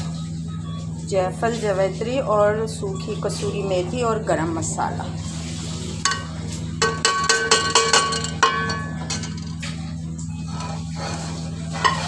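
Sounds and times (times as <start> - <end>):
spoon tapping metal pot: 6.1 - 9.4.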